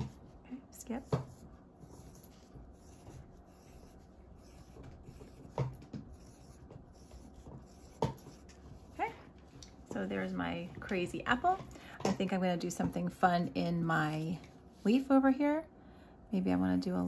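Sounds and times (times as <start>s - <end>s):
pencil scratching on paper: 0.9s - 9.1s.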